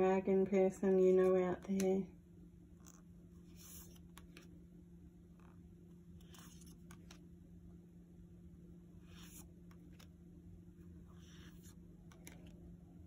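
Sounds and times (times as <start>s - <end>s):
low steady hum: 0.0s - 13.0s
cards swishing and ticking: 2.8s - 4.5s, 6.2s - 7.2s, 11.1s - 12.6s.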